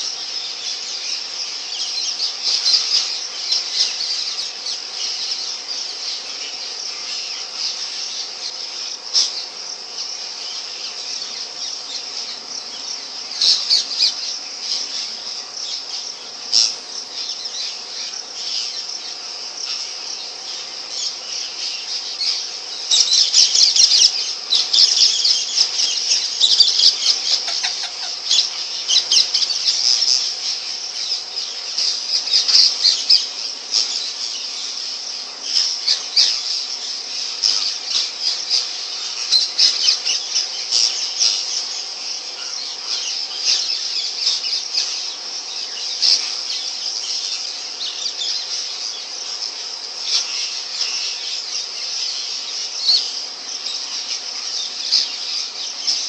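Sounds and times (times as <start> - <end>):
sharp parakeet calls: 19.6 - 56.0
parakeet chattering: 22.9 - 30.5.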